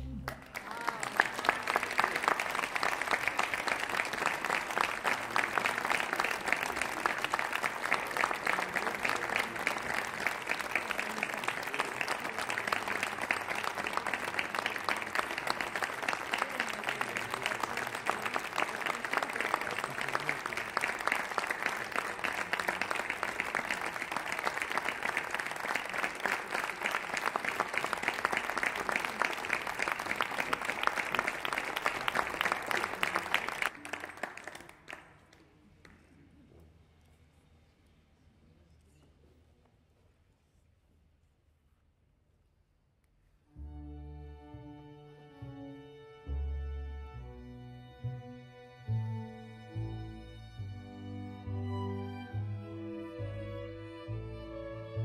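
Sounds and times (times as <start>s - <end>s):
audience applauding: 0.0s - 35.4s.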